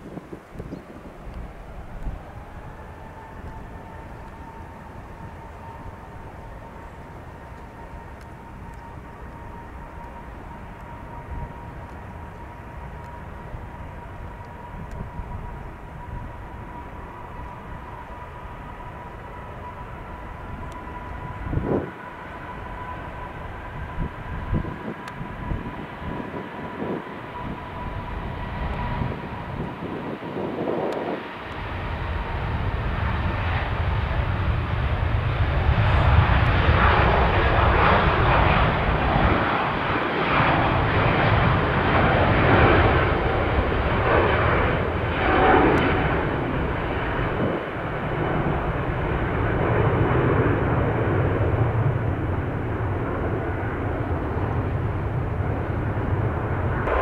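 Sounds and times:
jet engine rumble: 0:00.0 - 0:57.0.

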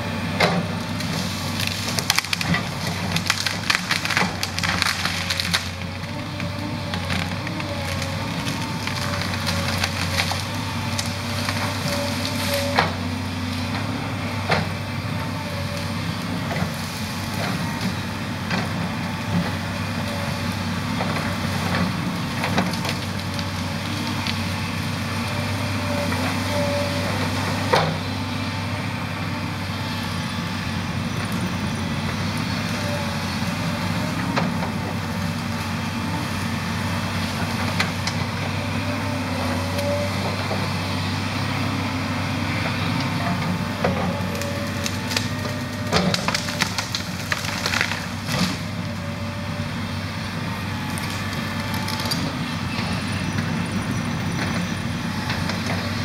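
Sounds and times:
excavator diesel engine running: 0:00.0 - 0:56.0
wood cracking and snapping: 0:01.0 - 0:12.7, 0:43.8 - 0:49.2.

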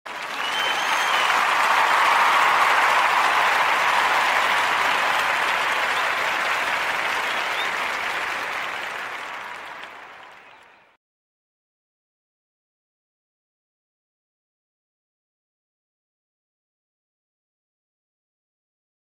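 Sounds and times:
crowd applause: 0:00.0 - 0:11.0.

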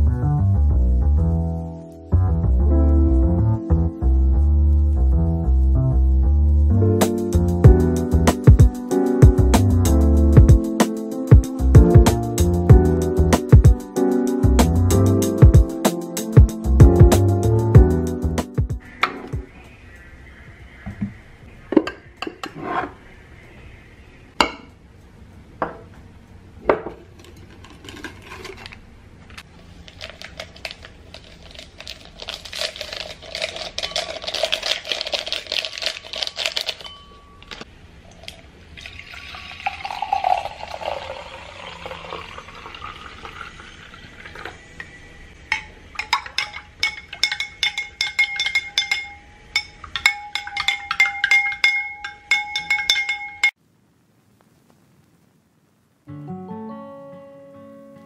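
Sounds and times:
glassware clinking: 0:24.4 - 0:24.7, 0:36.4 - 0:37.7, 0:45.5 - 0:53.6
liquid pouring into a glass: 0:38.0 - 0:44.9
spoon stirring and tapping glass: 0:45.5 - 0:53.6.

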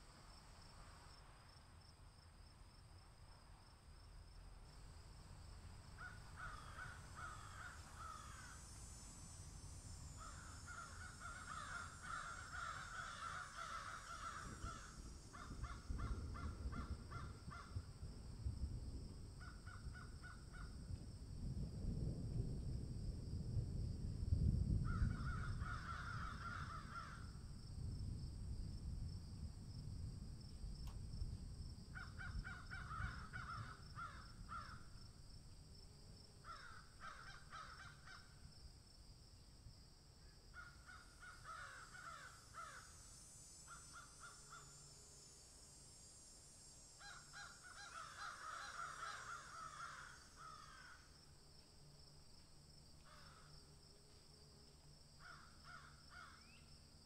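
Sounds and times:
high-pitched insect drone: 0:04.7 - 0:18.4, 0:31.8 - 0:57.0.

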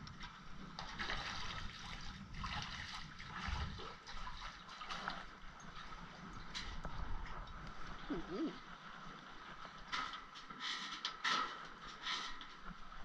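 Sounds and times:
water splashing from fish: 0:00.8 - 0:06.1.

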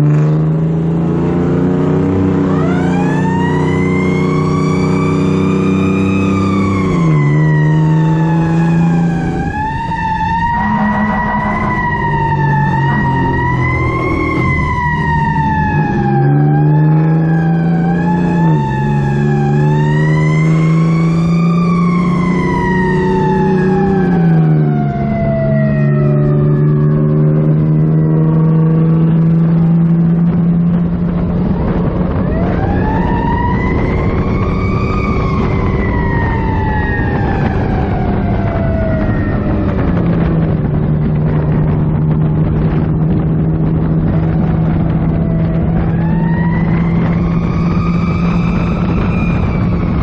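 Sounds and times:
fire truck siren wailing: 0:00.0 - 0:50.0
truck engine humming: 0:00.0 - 0:50.0.

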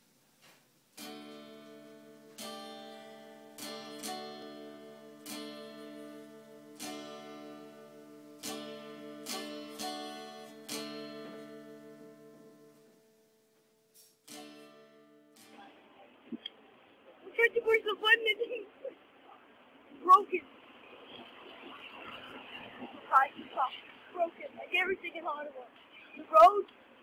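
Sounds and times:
acoustic guitar strumming chords: 0:01.0 - 0:15.8.

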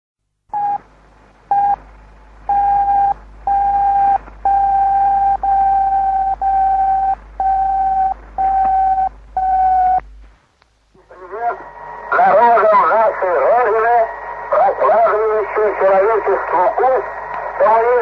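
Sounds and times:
beep tones: 0:00.6 - 0:00.8, 0:01.5 - 0:01.8, 0:02.5 - 0:10.0
radio hiss: 0:10.9 - 0:18.0.

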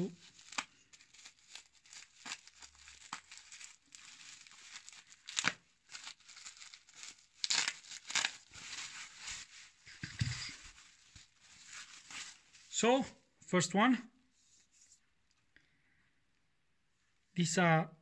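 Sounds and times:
knife slitting bubble wrap: 0:00.0 - 0:12.7
bubble wrap crinkling and crackling: 0:00.0 - 0:12.8.

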